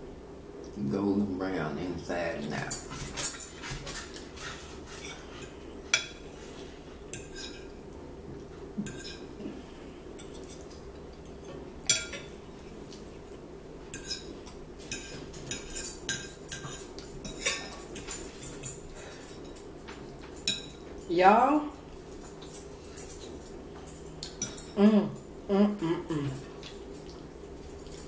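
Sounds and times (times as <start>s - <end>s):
forks clinking on plates: 2.5s - 6.2s, 10.2s - 12.4s, 14.0s - 21.1s, 21.8s - 25.3s.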